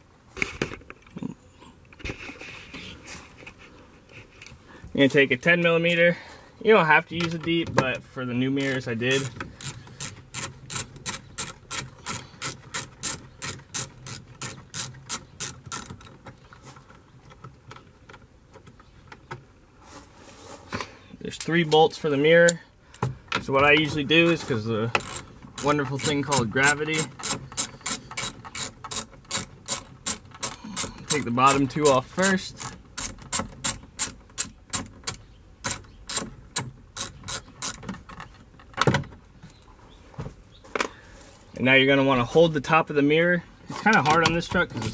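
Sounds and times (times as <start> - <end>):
hand ratchet clicking: 8.6 - 16.3, 24.9 - 38.0.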